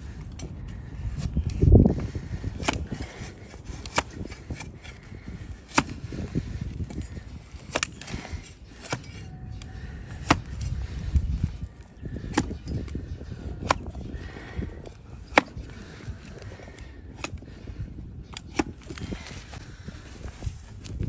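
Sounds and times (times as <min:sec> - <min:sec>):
blade chopping through hoof: 0:05.7 - 0:06.1, 0:10.2 - 0:10.7, 0:12.3 - 0:12.6.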